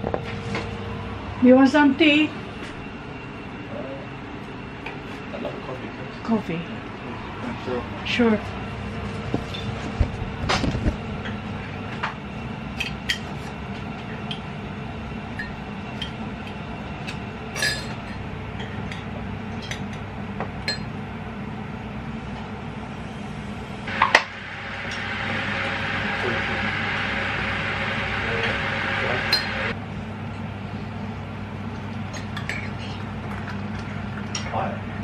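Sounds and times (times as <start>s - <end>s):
electric kettle hissing: 22.8s - 29.8s.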